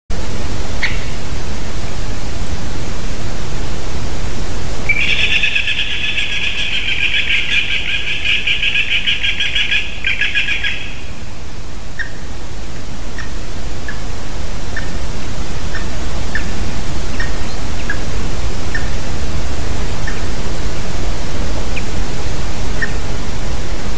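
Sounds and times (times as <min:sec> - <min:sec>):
steady hiss: 0:00.1 - 0:23.9
bird calling high notes: 0:04.9 - 0:11.1.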